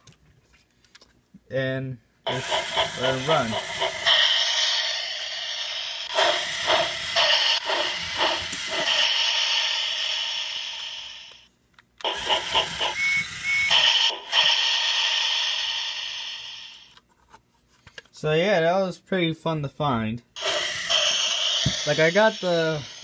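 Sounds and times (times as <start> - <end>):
toy train motor whining: 2.3 - 17.0, 20.4 - 23.0.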